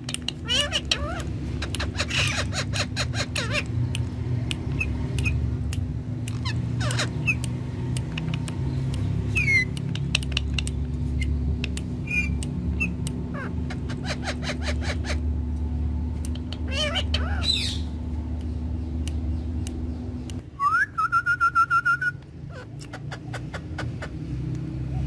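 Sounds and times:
sharp clicks: 0.0 - 2.2, 3.3 - 13.3, 16.2 - 16.7, 18.3 - 20.5
parakeets squawking and chirping: 0.0 - 5.5, 6.2 - 9.8, 12.0 - 15.6, 16.5 - 18.1, 22.4 - 25.0
low hum: 0.0 - 22.5.

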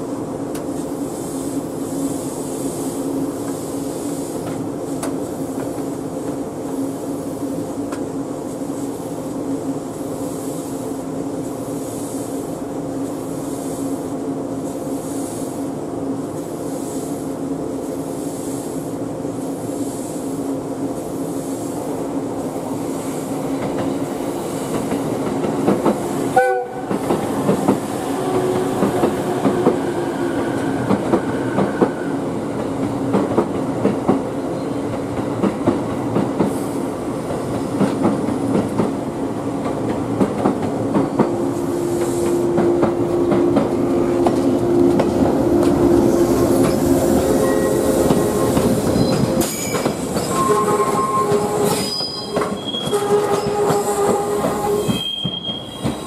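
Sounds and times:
train humming: 0.0 - 56.0
short train horn: 26.4 - 26.9, 50.3 - 56.0.

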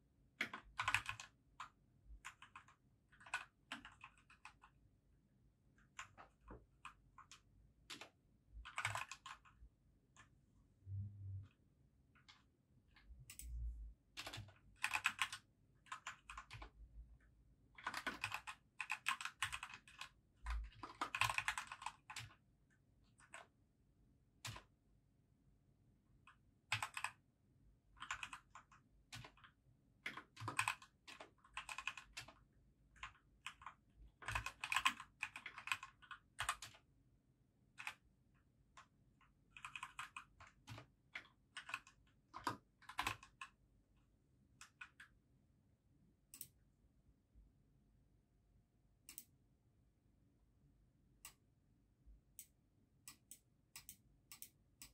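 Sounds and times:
mechanical keyboard typing: 0.4 - 4.8, 5.9 - 9.6, 14.2 - 16.8, 17.8 - 22.4, 24.4 - 24.7, 26.7 - 27.2, 28.0 - 36.9, 37.7 - 38.0, 39.5 - 43.6, 44.6 - 45.1.

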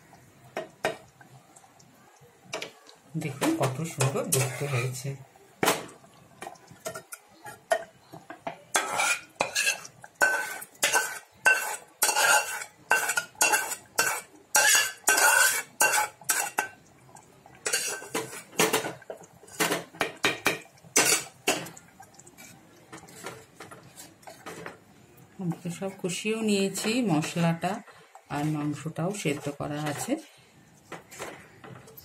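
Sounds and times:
metal spoon scraping metal pan: 3.9 - 5.1, 8.7 - 16.8, 17.6 - 19.9, 20.5 - 21.7, 28.4 - 30.3.

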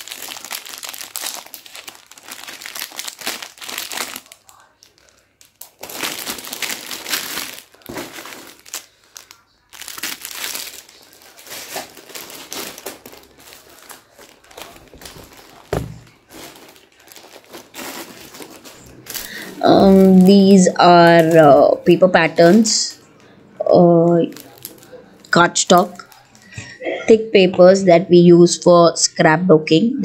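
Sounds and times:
plastic packaging crinkling: 0.0 - 23.4, 24.2 - 26.7
dull thump: 14.9 - 16.1.

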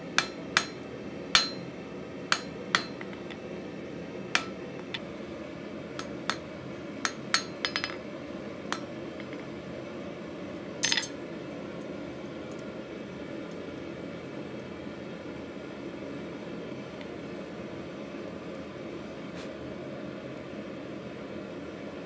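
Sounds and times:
hammer clinking on metal anvil: 1.4 - 1.7, 7.1 - 8.0.

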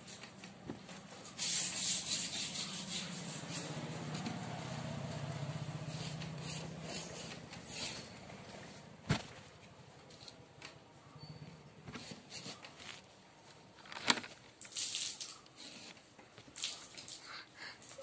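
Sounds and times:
cloth rustling: 7.7 - 10.4, 11.8 - 14.5.

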